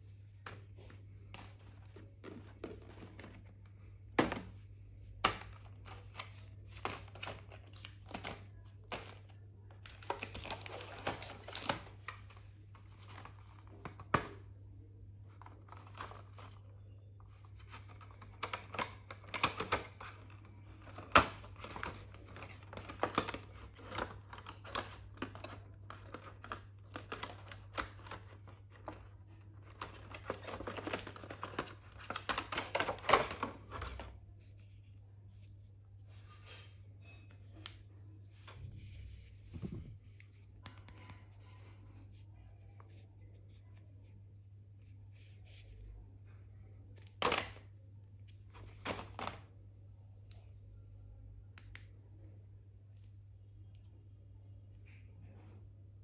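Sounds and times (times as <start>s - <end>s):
low steady hum: 0.0s - 56.0s
plastic packaging crinkling: 5.5s - 12.3s.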